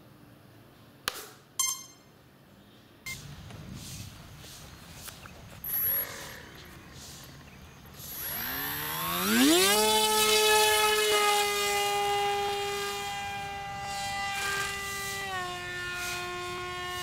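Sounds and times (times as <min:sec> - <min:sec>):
electric motor and propeller whine: 0:03.2 - 0:17.0.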